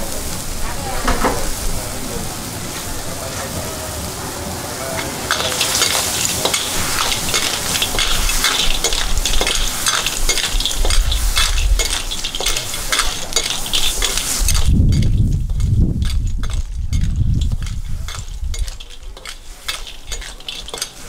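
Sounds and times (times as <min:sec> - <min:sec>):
clams sizzling in a wok: 0:00.0 - 0:21.0
metal ladle scraping a wok: 0:05.0 - 0:15.5, 0:17.4 - 0:21.0.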